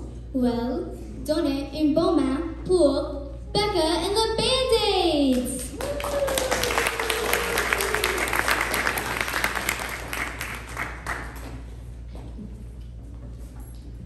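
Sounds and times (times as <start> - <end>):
audience applauding: 5.7 - 11.7.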